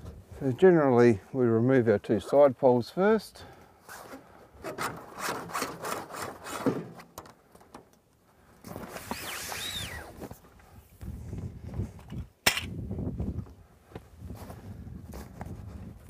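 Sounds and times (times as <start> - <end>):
metal pole hitting ground: 12.4 - 12.8
shuffling footsteps: 13.1 - 16.0.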